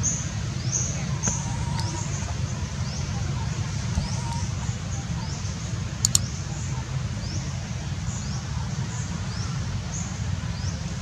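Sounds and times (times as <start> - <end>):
steady low rumble: 0.0 - 11.0
sharp high clicks: 6.0 - 6.3.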